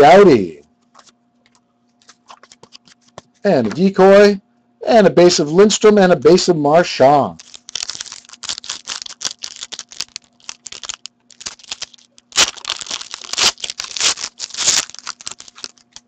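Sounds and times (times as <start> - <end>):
foil wrapper crinkling: 7.4 - 16.0.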